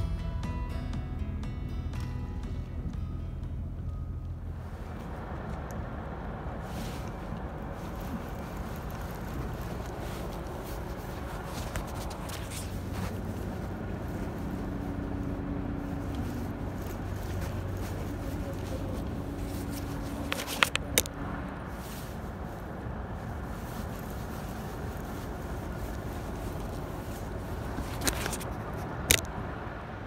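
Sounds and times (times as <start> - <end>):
distant engine rumble: 0.0 - 30.0
faint hum: 0.0 - 30.0.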